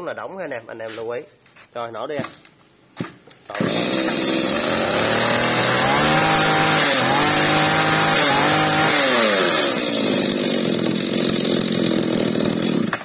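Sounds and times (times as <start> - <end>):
brush cutter engine revving: 3.5 - 13.0.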